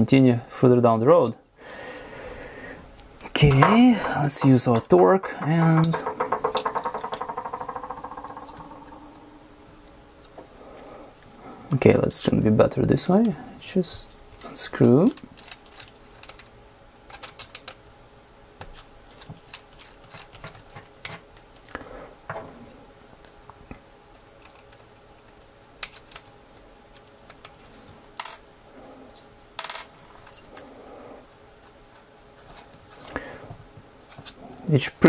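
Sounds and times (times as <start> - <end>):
small parts being handled: 3.0 - 11.3, 14.9 - 17.8, 18.6 - 21.7, 24.4 - 28.4
loud knocks: 3.4 - 9.8.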